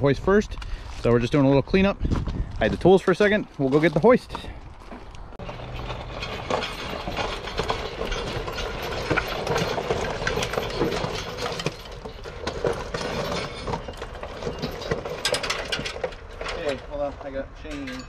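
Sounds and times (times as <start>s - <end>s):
wheels crunching over gravel: 0.0s - 18.0s
chain hoist clanking: 5.4s - 18.0s.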